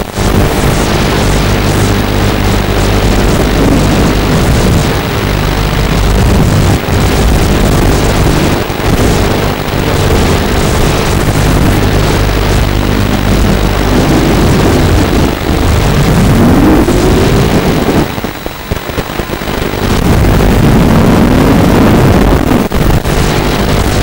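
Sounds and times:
quadcopter motors and propellers: 0.0 - 19.0
wind rush on microphone: 0.0 - 24.0.

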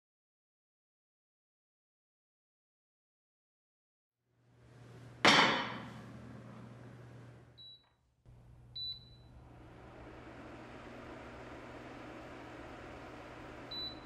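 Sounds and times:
clay pot set down: 5.2 - 5.9
cooker control beeps: 7.6 - 7.8, 8.7 - 9.4, 13.6 - 14.0.

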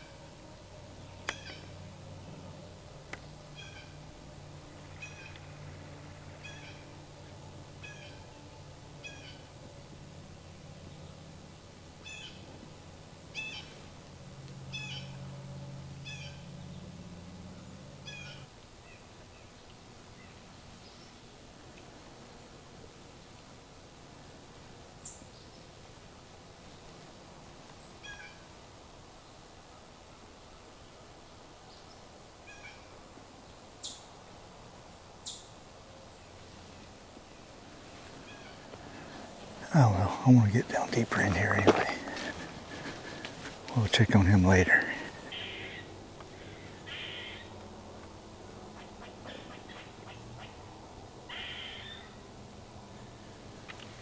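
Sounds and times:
faint animal calls: 0.0 - 2.7, 3.4 - 9.7, 12.0 - 12.5, 13.3 - 13.9, 14.6 - 16.8, 17.4 - 19.4, 27.9 - 28.6, 32.4 - 33.0, 38.2 - 47.6, 48.7 - 52.3
low steady hum: 0.0 - 54.0
animal mewing calls: 6.4 - 6.9, 44.8 - 47.5.

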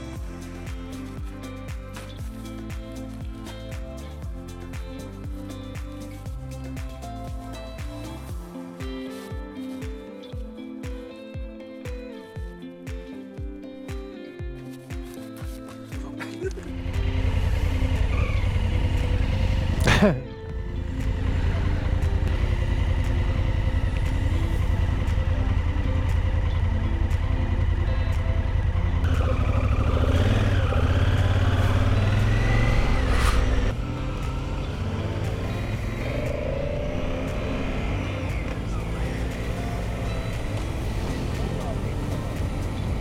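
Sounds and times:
motorcycle engine running: 16.5 - 43.0
falling whoosh: 31.7 - 34.4.

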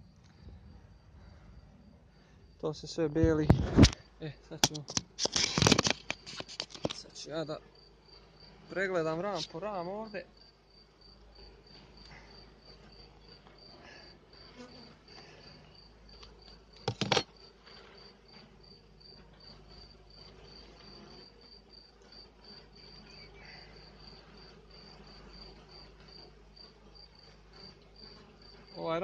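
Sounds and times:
cricket chirping: 0.0 - 29.0
wooden hive frames clacking: 3.2 - 7.2, 15.5 - 29.0
honeybees humming: 4.0 - 29.0.

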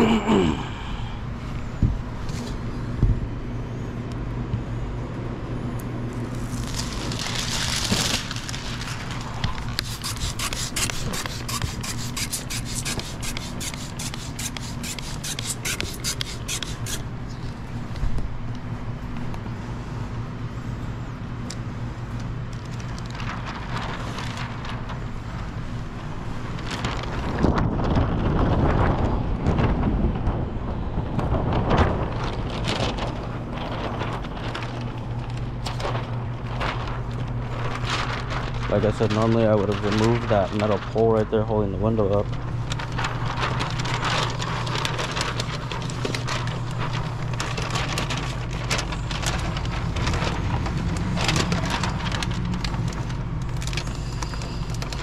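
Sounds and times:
steady low hum: 0.0 - 55.0
plastic film crinkling: 6.1 - 17.9, 22.2 - 27.6, 31.4 - 55.0
rubbing handling noise: 6.4 - 17.6, 32.5 - 55.0.

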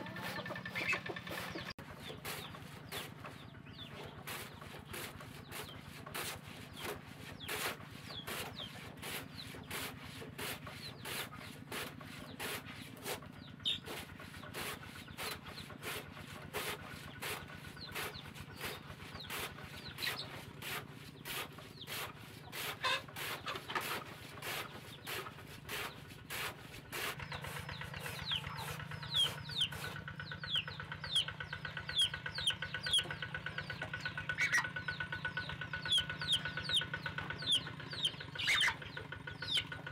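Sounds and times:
blade scraping wood: 0.0 - 34.6
chickens clucking: 0.0 - 39.9.

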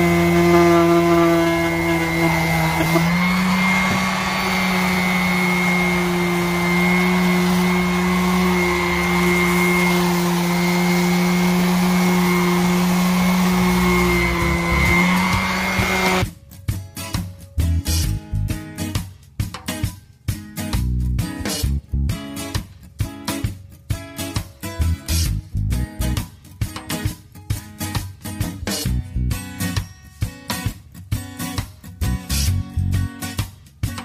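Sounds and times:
orbital sander whining: 0.0 - 16.2.

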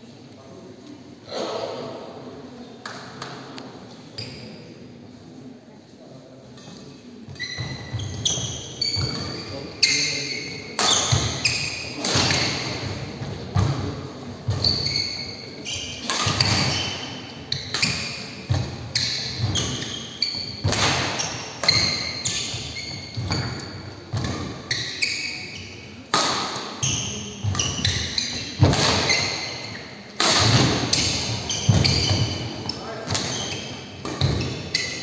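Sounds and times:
shoes squeaking on court: 4.1 - 4.6, 6.6 - 35.0
rackets striking shuttlecock: 15.8 - 24.6, 26.1 - 35.0.

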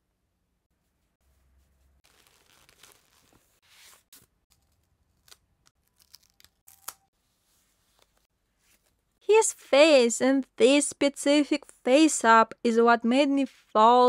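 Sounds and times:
tape tearing and crinkling: 2.0 - 4.3, 5.1 - 7.0.

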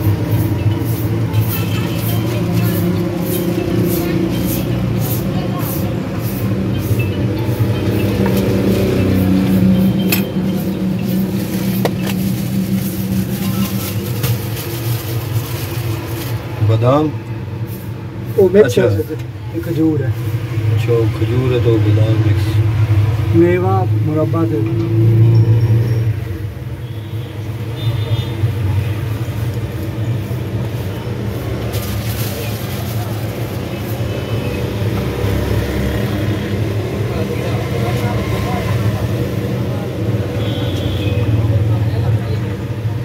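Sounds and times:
engine hum: 0.0 - 26.8.

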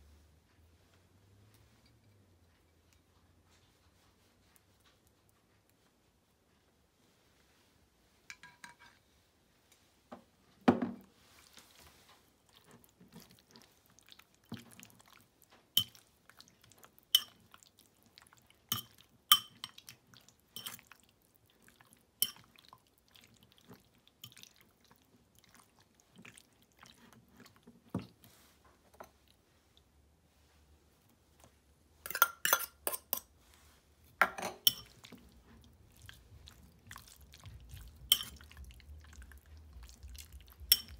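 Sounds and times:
wet squishing of chicken: 11.2 - 28.6, 34.8 - 40.9
fork clinking against bowl: 17.2 - 17.4, 18.7 - 19.8, 32.1 - 33.3, 34.2 - 35.0, 38.1 - 38.4.

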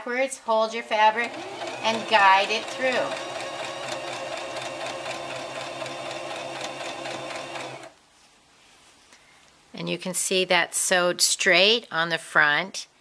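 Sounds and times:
electric sewing machine running: 1.1 - 7.9.

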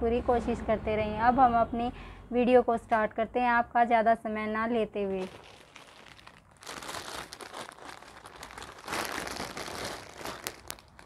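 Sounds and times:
plastic bag crinkling: 5.1 - 11.0.

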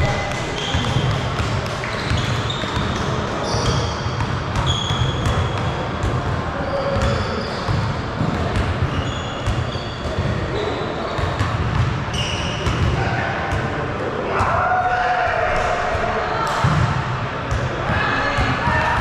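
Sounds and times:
sneaker squeaks: 0.0 - 13.0.

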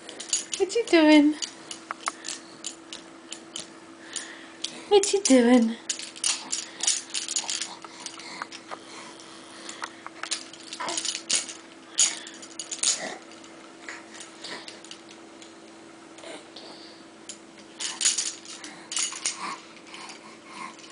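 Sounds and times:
plastic rings clattering: 0.0 - 8.7, 9.7 - 13.5, 17.8 - 20.2.

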